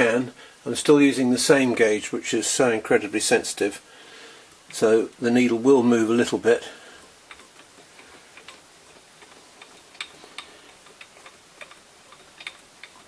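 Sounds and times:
lathe carriage metallic clicks: 7.3 - 13.0.

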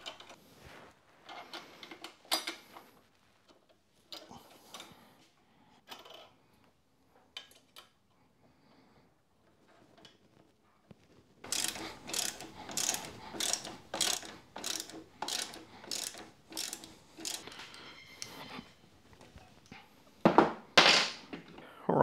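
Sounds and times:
ratchet wrench clicking: 11.4 - 17.6.

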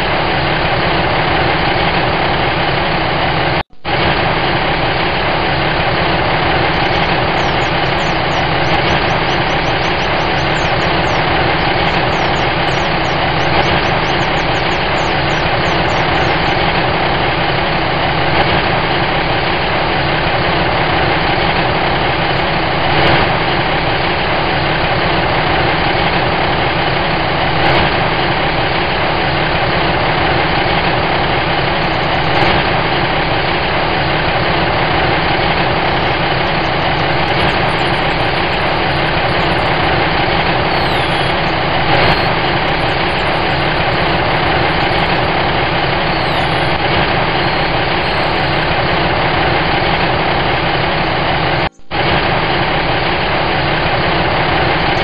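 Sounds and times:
truck engine idling: 4.5 - 20.5, 29.7 - 55.0
birds chirping: 5.3 - 18.3, 31.2 - 55.0.

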